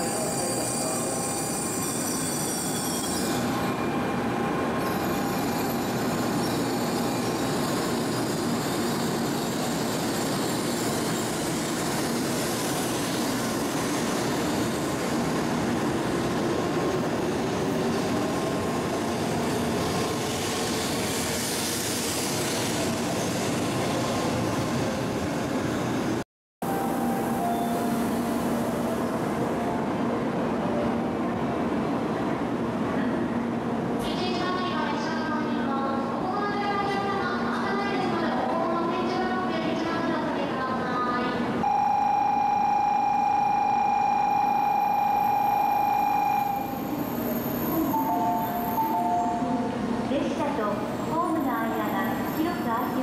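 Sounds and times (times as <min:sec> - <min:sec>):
train pulling out: 0:00.0 - 0:33.9, 0:41.6 - 0:53.0.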